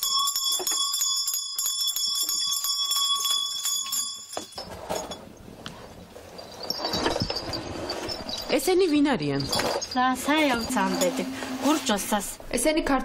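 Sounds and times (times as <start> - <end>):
hand bell ringing and jingling: 0.0 - 5.2, 6.3 - 11.4
indistinct background noise: 4.4 - 13.0.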